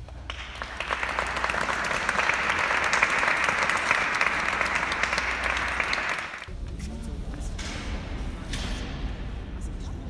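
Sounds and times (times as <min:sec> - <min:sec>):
audience clapping: 0:00.0 - 0:06.5.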